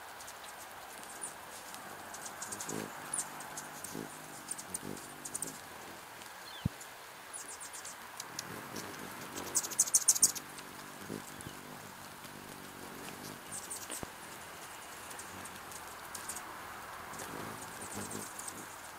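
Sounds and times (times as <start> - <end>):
hummingbird wings buzzing: 0.0 - 18.9
rain pattering: 0.0 - 18.9
hummingbird chip notes: 1.0 - 6.8, 8.2 - 16.4, 17.1 - 18.6.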